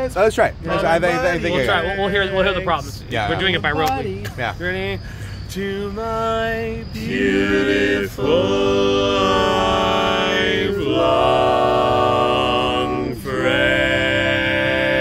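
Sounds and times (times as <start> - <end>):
male quartet singing a cappella: 5.4 - 15.0.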